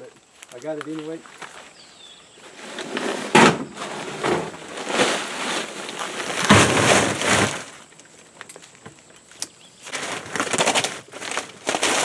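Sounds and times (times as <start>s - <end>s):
heavy crunching thuds: 2.5s - 7.8s
plastic bag rustling: 2.5s - 7.9s, 9.8s - 12.0s
stones crunching: 3.7s - 12.0s.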